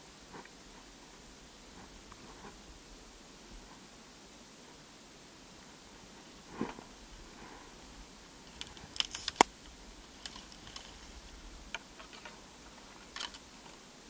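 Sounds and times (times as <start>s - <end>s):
soft rustles: 5.5s - 13.9s.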